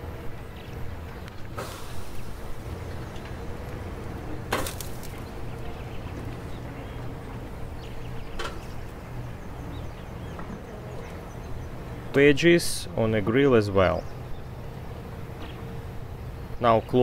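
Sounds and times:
low grill rumble: 0:00.0 - 0:17.0
meat sizzling on grill: 0:04.5 - 0:05.2.

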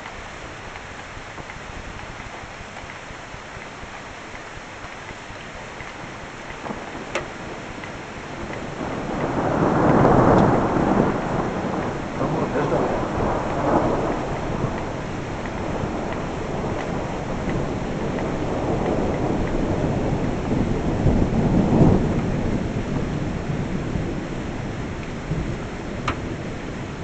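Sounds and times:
steady rain: 0:00.0 - 0:27.0
thunder rolling: 0:06.0 - 0:27.0.

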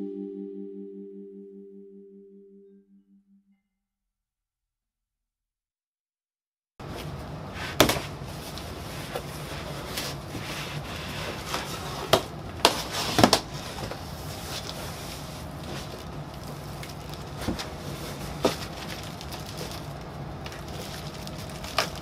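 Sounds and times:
low room hum: 0:06.8 - 0:22.0.

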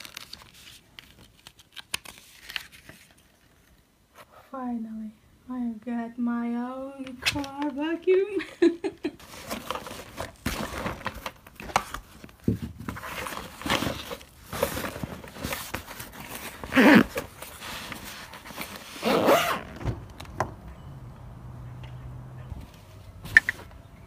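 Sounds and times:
nylon bag rustling and scraping: 0:12.9 - 0:19.8
zipper being worked: 0:16.7 - 0:17.2, 0:18.9 - 0:19.8.

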